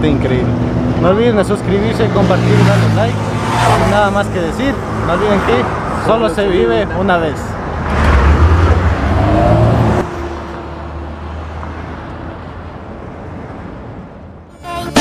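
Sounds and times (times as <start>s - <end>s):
street traffic noise: 0.0s - 15.0s
car accelerating away: 7.8s - 10.1s.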